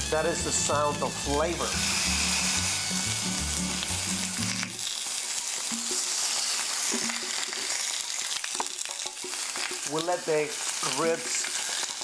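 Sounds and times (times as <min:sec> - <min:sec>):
background music with low notes: 0:00.0 - 0:04.9
meat sizzling on a grill: 0:00.3 - 0:12.0.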